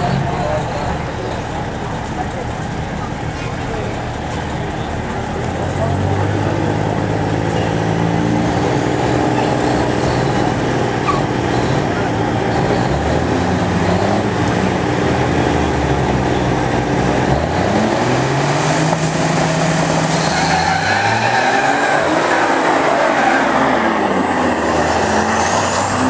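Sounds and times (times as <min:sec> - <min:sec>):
truck diesel engines revving: 0:00.0 - 0:26.0.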